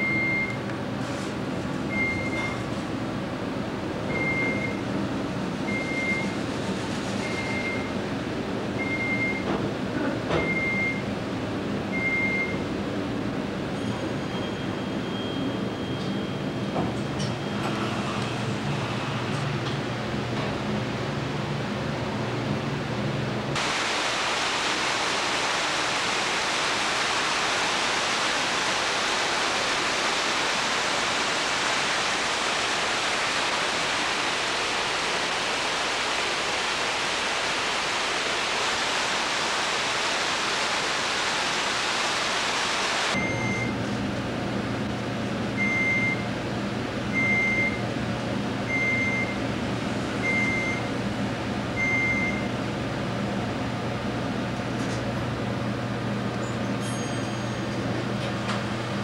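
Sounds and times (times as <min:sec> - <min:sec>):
steady even hiss: 0:23.6 - 0:43.2.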